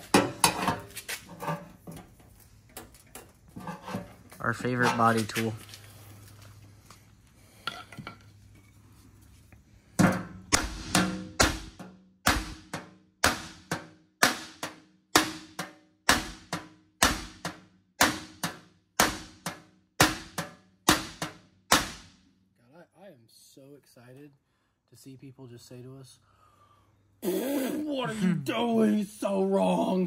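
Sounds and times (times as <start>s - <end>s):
hammer striking metal bumper: 10.0s - 22.1s.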